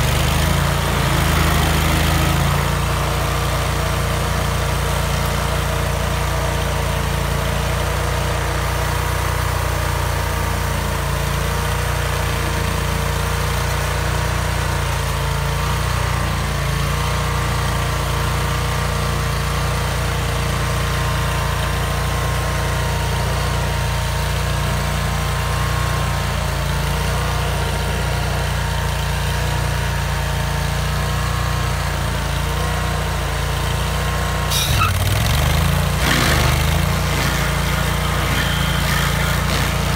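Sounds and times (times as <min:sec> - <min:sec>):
stump grinder engine running: 0:00.0 - 0:39.9
short sharp noise: 0:34.5 - 0:35.1.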